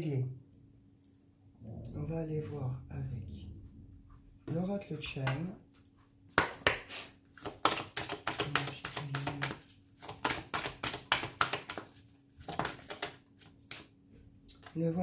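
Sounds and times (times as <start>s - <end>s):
cards being shuffled: 6.4s - 13.9s.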